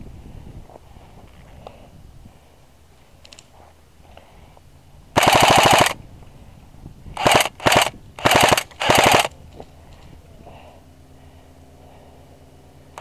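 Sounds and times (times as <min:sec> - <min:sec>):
airsoft rifle firing bursts: 0:05.2 - 0:06.0, 0:07.2 - 0:09.3.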